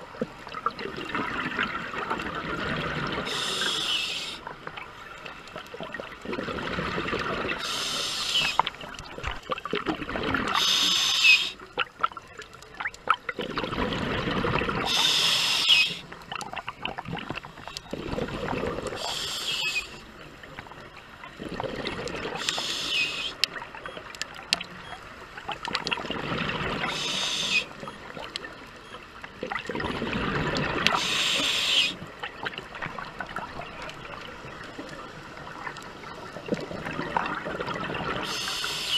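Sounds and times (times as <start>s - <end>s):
exhaled bubbles underwater: 0.0s - 38.9s.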